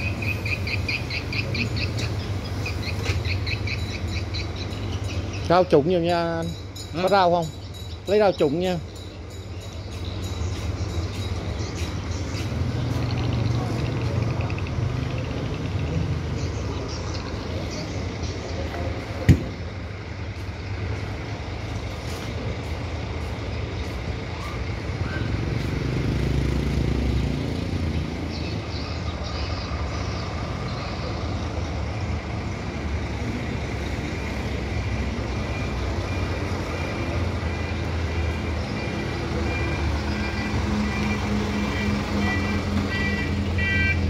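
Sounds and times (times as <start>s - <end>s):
vehicle engine rumbling: 0.0s - 44.0s
sharp knock: 19.2s - 19.6s.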